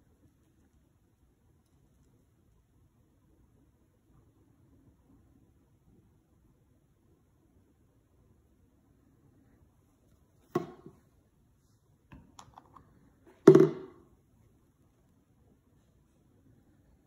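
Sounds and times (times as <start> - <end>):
plastic bottle knocking on stone: 13.5 - 14.0.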